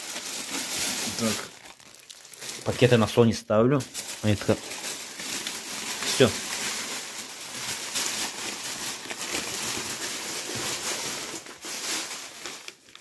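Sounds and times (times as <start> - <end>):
plastic bag rustling: 0.0 - 13.0.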